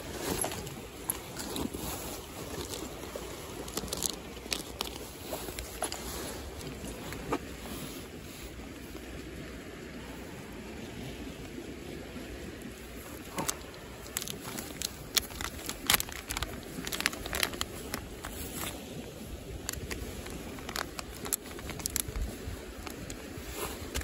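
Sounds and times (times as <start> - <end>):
plastic bag crinkling: 0.2 - 6.0, 13.3 - 18.8, 19.6 - 23.2.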